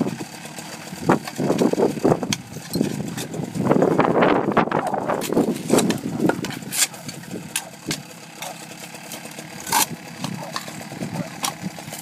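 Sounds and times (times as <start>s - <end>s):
engine idling hum: 0.0s - 12.0s.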